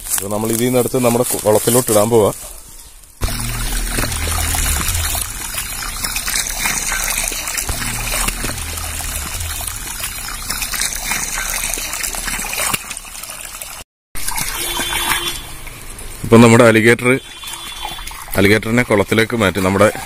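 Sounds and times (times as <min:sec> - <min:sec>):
hose water pouring into pond: 0:03.1 - 0:20.0.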